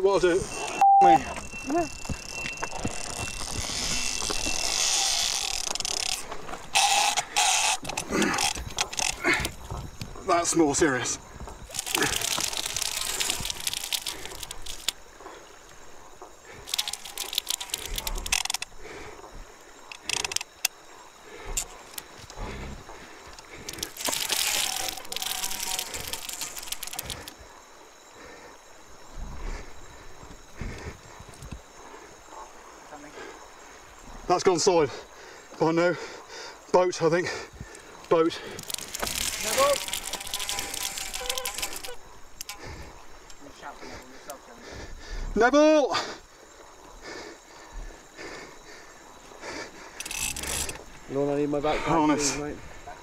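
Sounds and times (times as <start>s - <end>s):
fishing reel drag buzzing: 2.0s - 9.3s, 11.7s - 15.0s, 16.6s - 18.7s, 23.7s - 27.3s, 38.6s - 42.8s, 50.0s - 50.8s
rod handling noise: 2.2s - 9.8s, 11.6s - 15.0s, 16.6s - 18.7s, 23.3s - 27.4s, 38.0s - 43.4s, 50.0s - 50.8s.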